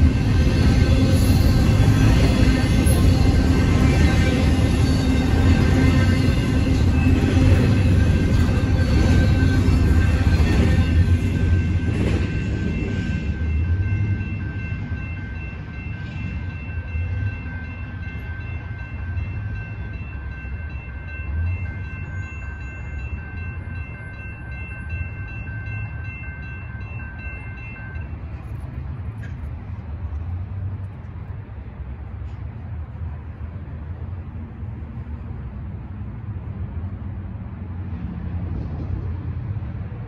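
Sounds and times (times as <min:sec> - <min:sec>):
crossing warning bell ringing: 0:00.0 - 0:30.8
freight train rumbling: 0:00.0 - 0:40.0.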